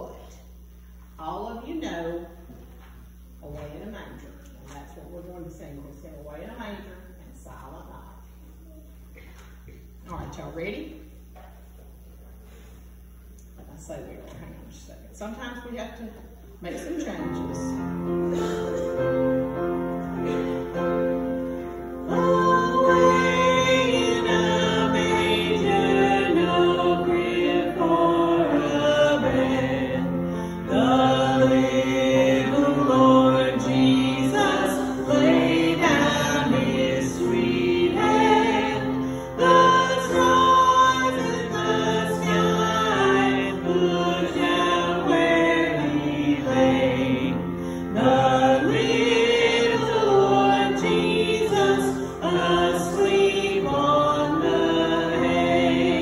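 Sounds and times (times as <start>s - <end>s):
congregation singing a carol: 17.2s - 56.0s.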